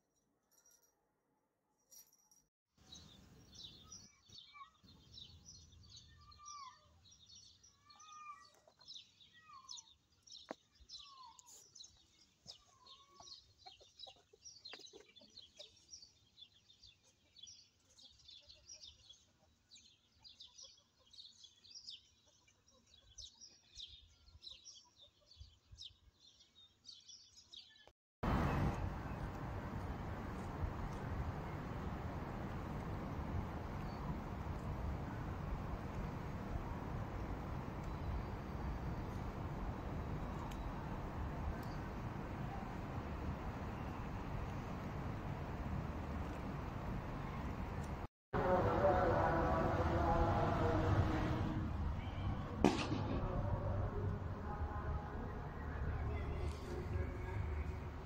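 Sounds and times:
small birds chirping: 0:02.9 - 0:48.1
loud steady noise: 0:28.2 - 0:51.8.

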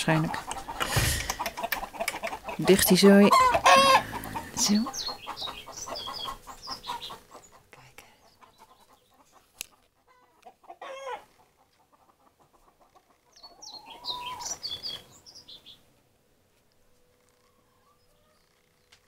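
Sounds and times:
chickens clucking: 0:00.0 - 0:15.8
small birds chirping: 0:00.0 - 0:19.0
drawn-out chicken call: 0:00.1 - 0:07.7, 0:08.4 - 0:15.8.

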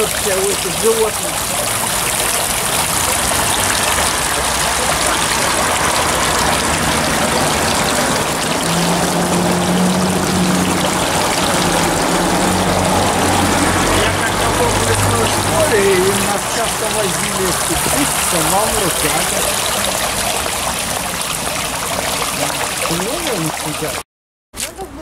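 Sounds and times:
fountain water splashing: 0:00.0 - 0:24.0, 0:24.6 - 0:25.0
low engine hum: 0:02.7 - 0:21.1.

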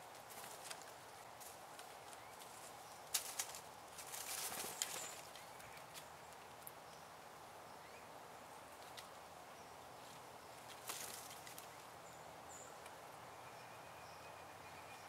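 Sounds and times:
bird hopping in dry leaves: 0:00.0 - 0:07.1, 0:09.8 - 0:13.0
rustle of leaves: 0:00.0 - 0:15.0.

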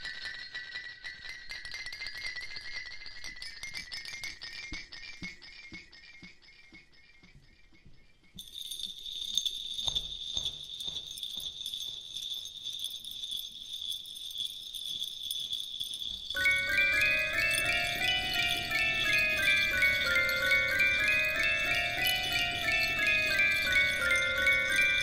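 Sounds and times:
tinkling bell-like music: 0:00.0 - 0:05.0, 0:08.4 - 0:25.0
high jingling shimmer: 0:08.4 - 0:25.0.

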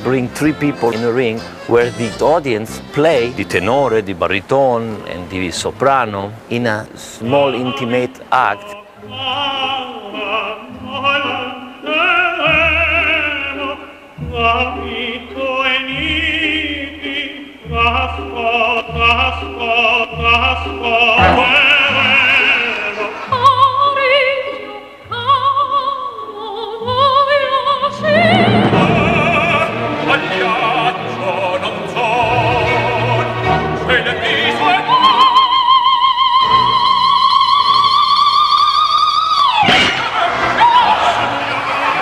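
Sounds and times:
orchestra playing: 0:00.0 - 0:04.0, 0:21.2 - 0:23.0, 0:27.8 - 0:35.6
operatic singing with vibrato: 0:07.2 - 0:42.0.

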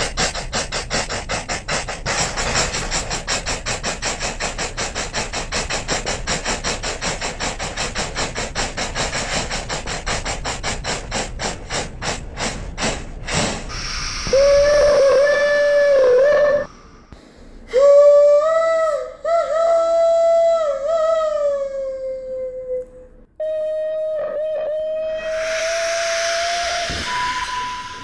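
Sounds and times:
steam locomotive chuffing: 0:00.0 - 0:18.0, 0:25.2 - 0:28.0
steam whistle: 0:13.7 - 0:17.0, 0:23.4 - 0:28.0.

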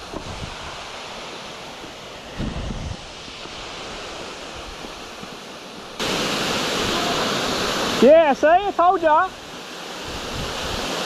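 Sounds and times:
wind buffeting microphone: 0:00.0 - 0:01.0, 0:02.2 - 0:05.2, 0:10.1 - 0:11.0
steady rushing hiss: 0:00.0 - 0:11.0.

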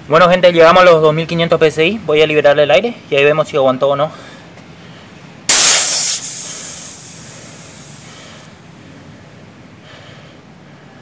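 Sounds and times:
high-pressure air hissing: 0:05.5 - 0:08.6.

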